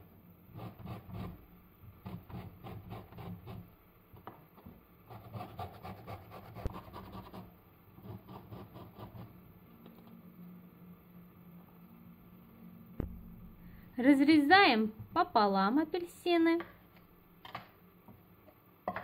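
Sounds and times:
sharp knock: 13.0s - 13.5s.

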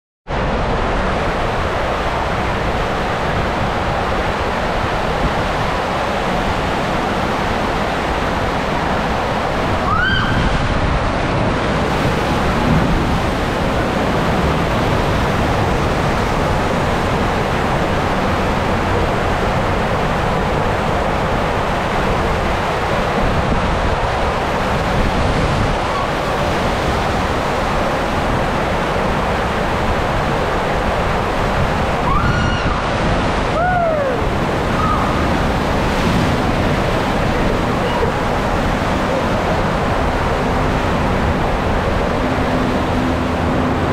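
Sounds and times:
water rushing: 0.3s - 43.9s
wind on microphone: 0.3s - 43.9s
rising squeal: 9.8s - 10.6s, 32.0s - 32.9s, 33.6s - 35.3s.

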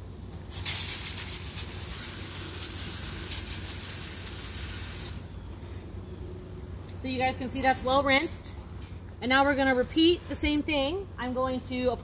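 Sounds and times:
hose spraying water on concrete: 0.0s - 5.3s.

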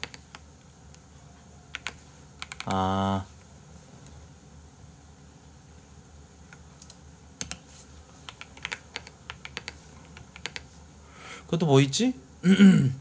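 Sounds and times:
computer keyboard typing: 0.0s - 0.4s, 1.7s - 2.8s, 6.8s - 7.6s, 8.3s - 10.7s.

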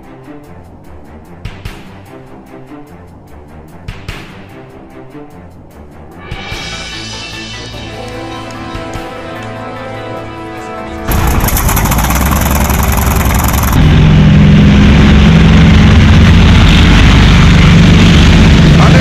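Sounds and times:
propeller plane engine droning: 11.0s - 19.0s.

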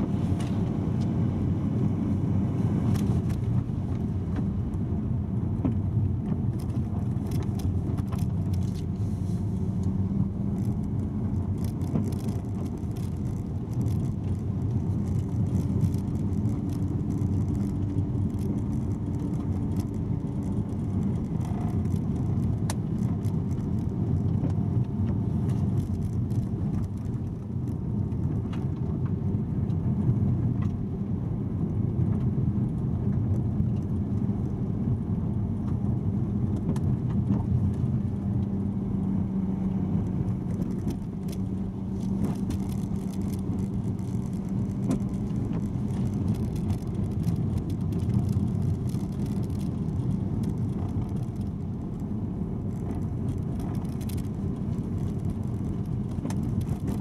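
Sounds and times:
tyres and engine rumbling: 0.0s - 57.0s
gravel clicks and ticks: 2.8s - 30.8s, 31.6s - 57.0s.

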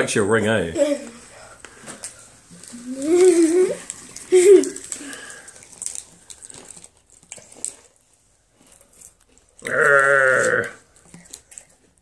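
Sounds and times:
bleat-like call: 9.7s - 10.8s.

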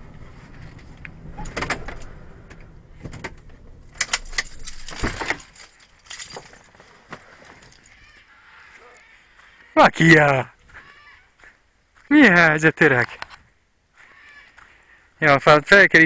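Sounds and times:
car engine idling: 0.0s - 6.6s
car door opening: 0.7s - 6.6s
keys jangling: 3.9s - 8.0s.

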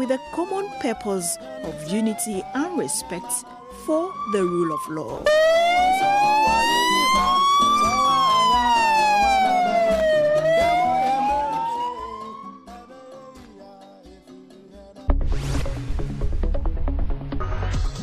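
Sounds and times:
siren wailing: 0.0s - 12.7s.

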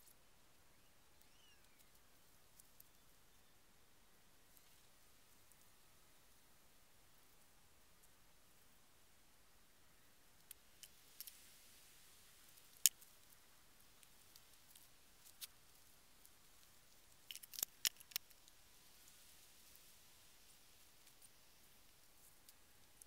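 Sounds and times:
low hiss: 0.0s - 23.0s
faint sharp clicks: 1.1s - 3.0s, 10.4s - 11.5s, 16.2s - 18.6s.

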